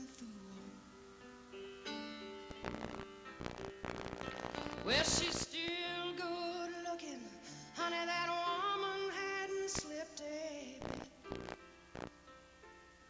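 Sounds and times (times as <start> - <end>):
woman singing country song: 0.0 - 0.9, 4.7 - 11.2
soft piano accompaniment: 0.0 - 3.4, 11.2 - 13.0.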